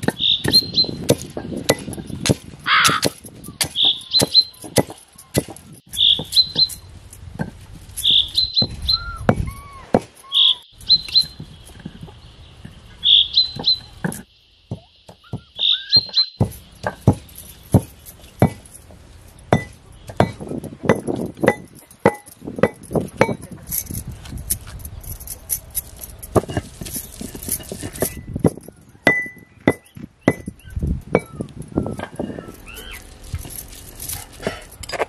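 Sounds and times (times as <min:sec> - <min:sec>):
pestle pounding in stone mortar: 0:00.0 - 0:07.6, 0:13.5 - 0:18.7, 0:19.4 - 0:23.5, 0:26.3 - 0:33.5.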